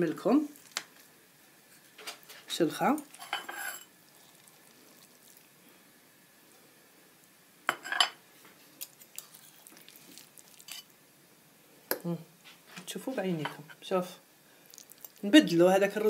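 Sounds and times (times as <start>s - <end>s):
metal spatula scraping pan: 3.2s - 3.9s.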